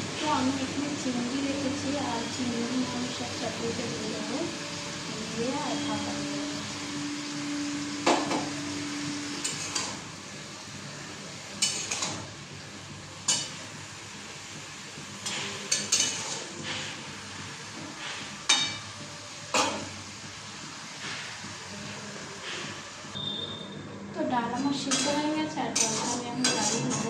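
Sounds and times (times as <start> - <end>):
cooking hiss on stove: 0.0 - 27.0
utensils clinking on steel pots: 11.6 - 12.2, 13.3 - 13.6, 15.2 - 16.6, 24.8 - 27.0.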